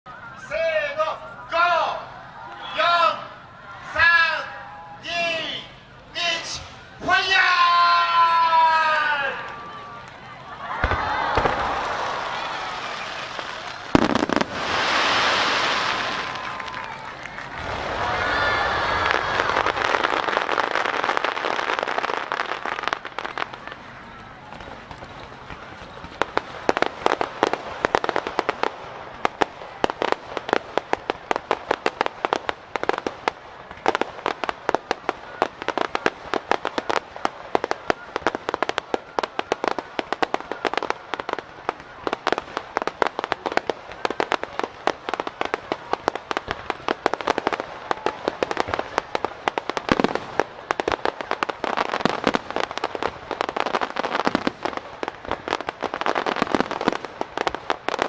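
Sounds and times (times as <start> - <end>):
fireworks bangs and crackles: 5.0 - 58.0
loud firework boom: 10.8 - 16.7.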